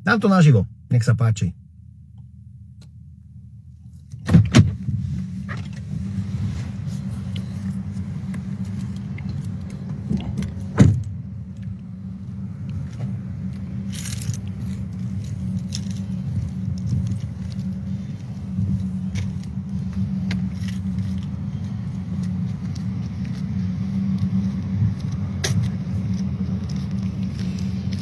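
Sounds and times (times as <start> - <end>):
car door opening: 4.2 - 5.9, 9.0 - 11.2.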